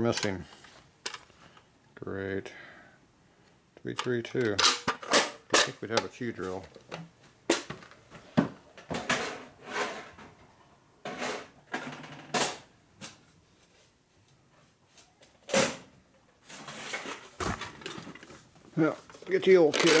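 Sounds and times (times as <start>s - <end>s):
drill bit boxes rummaged: 16.6s - 20.0s.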